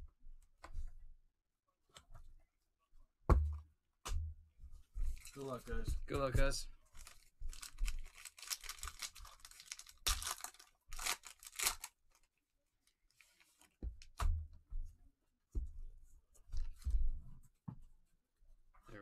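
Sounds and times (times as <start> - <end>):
foil wrapper crinkling and tearing: 6.9 - 13.8
cards handling: 7.0 - 12.0.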